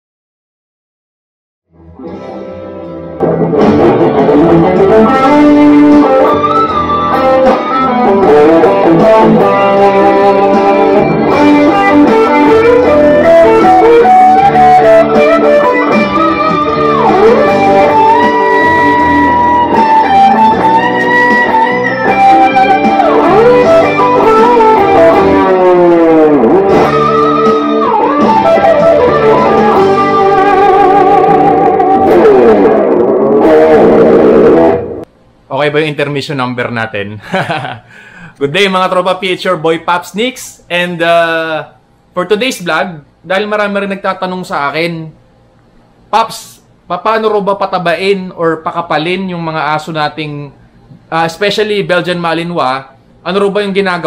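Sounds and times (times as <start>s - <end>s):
electric guitar lead with bends: 1.7s - 35.1s.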